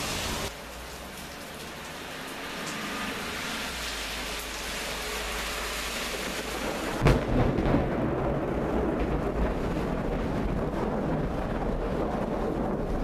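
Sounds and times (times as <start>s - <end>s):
heavy rain hissing: 0.0s - 7.0s
thunder crack and rumble: 6.6s - 13.0s.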